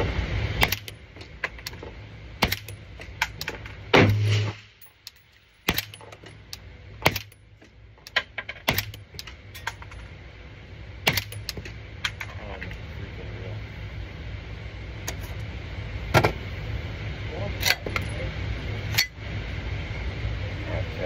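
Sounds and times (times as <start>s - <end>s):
steady low hum: 0.0s - 21.0s
suppressed rifle shots: 11.0s - 11.4s.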